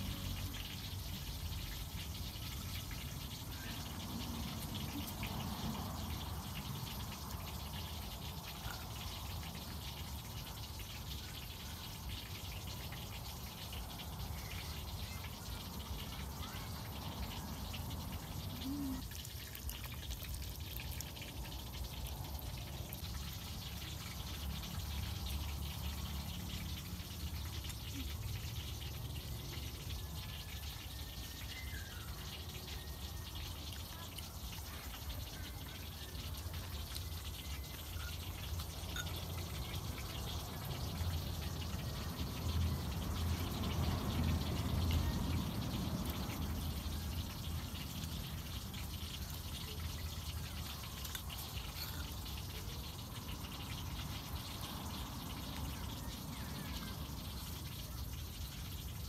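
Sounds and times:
wet chewing and mouth sounds: 50.1 - 52.4.

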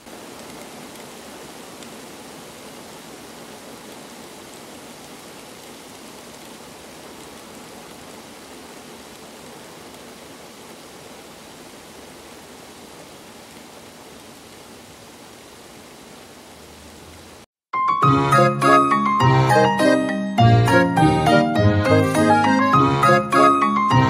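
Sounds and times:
heavy rain on water: 0.0 - 17.5, 20.7 - 24.0.

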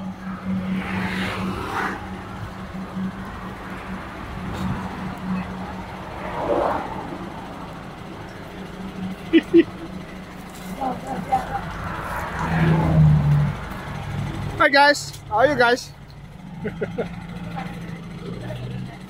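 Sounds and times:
steady engine hum: 0.0 - 19.0
vehicles passing by: 0.0 - 19.0.

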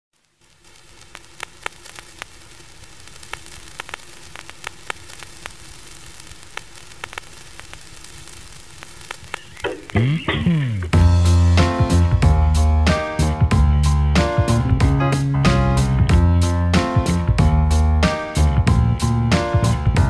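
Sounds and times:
sharp static clicks: 0.1 - 12.3
static hiss: 0.1 - 20.0
faint steady hum: 0.2 - 11.1.

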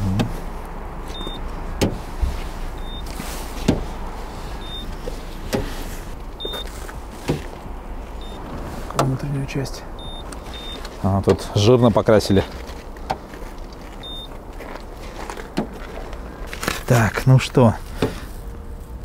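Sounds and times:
low steady hum: 0.0 - 19.0
short high beeps: 2.8 - 3.1, 10.0 - 10.8, 14.0 - 14.3.

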